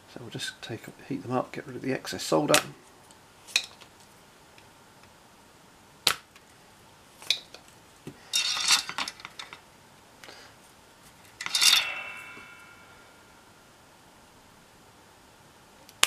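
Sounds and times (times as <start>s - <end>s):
metallic clink with ring: 11.4s - 13.5s.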